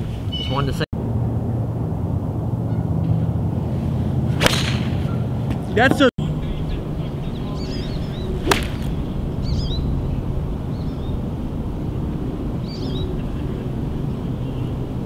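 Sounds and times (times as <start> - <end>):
birds chirping: 0.0 - 0.9, 4.9 - 15.0
steady low rumble: 1.0 - 15.0
golf club striking ball: 4.4 - 5.0, 8.4 - 9.0.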